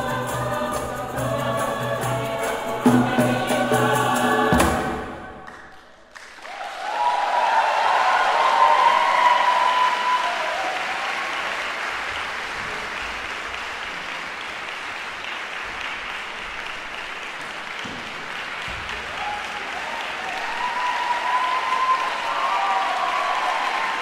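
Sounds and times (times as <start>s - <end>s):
audience applauding: 5.2s - 24.0s.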